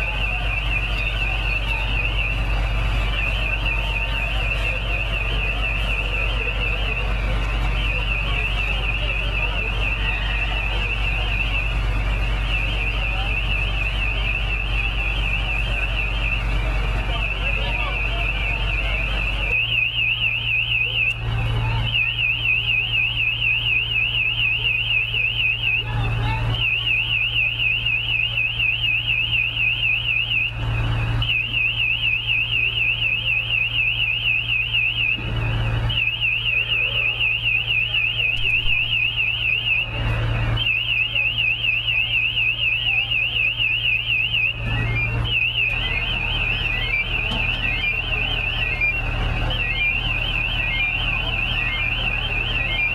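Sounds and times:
electronic alarm warbling: 0:00.0 - 0:52.9.

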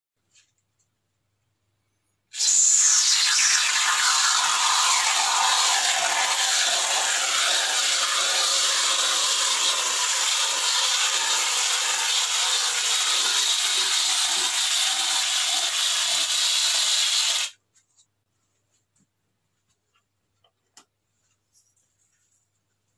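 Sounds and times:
aerosol can spraying hiss: 0:02.3 - 0:17.6.

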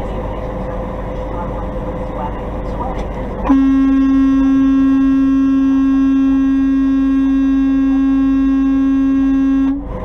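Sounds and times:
truck horn long blast: 0:03.5 - 0:09.9.

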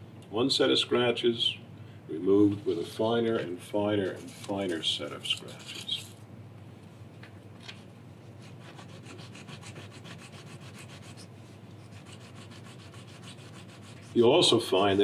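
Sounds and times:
metal part rubbed on wet sandpaper: 0:04.2 - 0:06.1, 0:08.4 - 0:14.4.

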